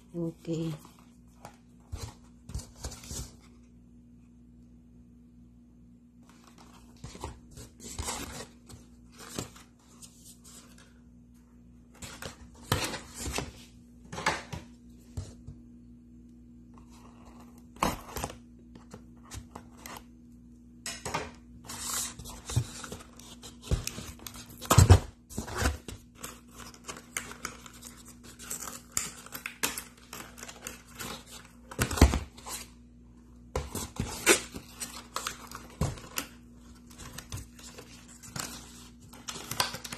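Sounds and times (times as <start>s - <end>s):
cardboard rustling and tearing: 6.2s - 11.0s, 21.6s - 32.8s, 33.6s - 39.9s.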